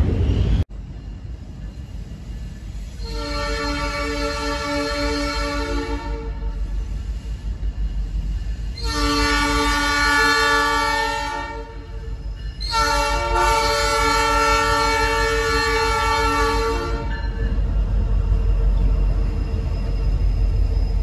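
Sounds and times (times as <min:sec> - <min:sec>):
freight cars rumbling on rails: 0:00.0 - 0:21.0
locomotive air horn blasts: 0:03.0 - 0:06.5, 0:08.8 - 0:11.9, 0:12.7 - 0:17.2.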